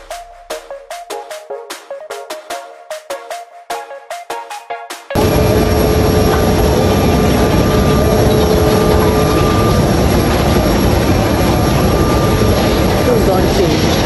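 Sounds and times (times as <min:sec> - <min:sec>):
jet aircraft rumble: 0:05.2 - 0:14.0
jet engine whine: 0:05.2 - 0:14.0.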